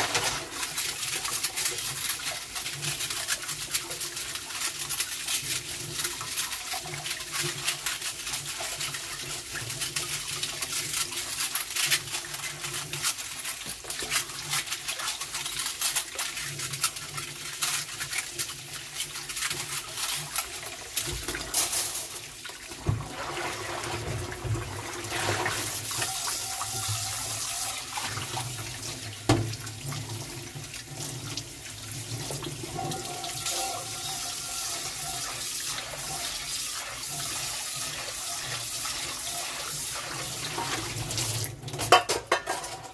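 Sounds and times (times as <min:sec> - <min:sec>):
tap water splashing into sink: 0:00.0 - 0:04.3, 0:19.4 - 0:42.8.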